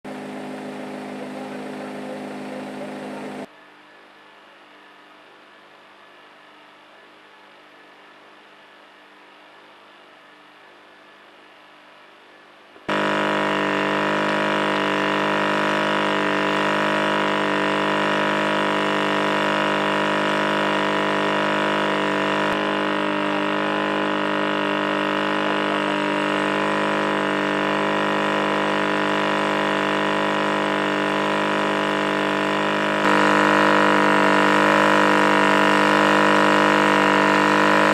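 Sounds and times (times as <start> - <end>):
loud engine drone: 0.0 - 3.5, 12.9 - 37.9
faint steady hum: 0.1 - 37.9.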